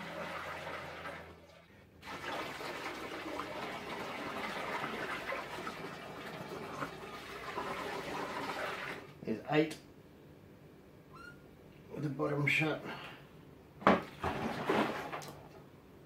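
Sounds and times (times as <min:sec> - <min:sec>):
water pouring through a funnel: 0:00.0 - 0:09.2.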